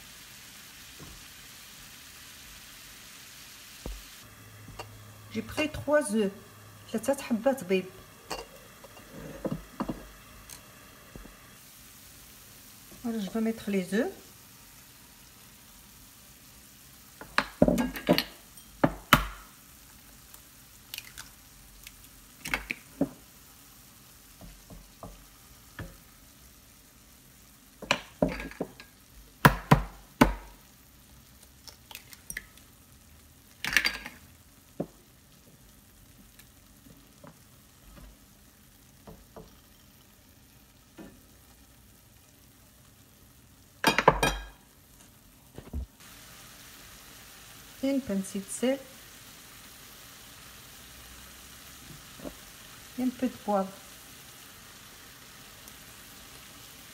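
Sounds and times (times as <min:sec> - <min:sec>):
food sizzling in a frying pan: 0:00.0 - 0:56.9
eggs cracking: 0:20.3 - 0:22.9, 0:31.4 - 0:32.7.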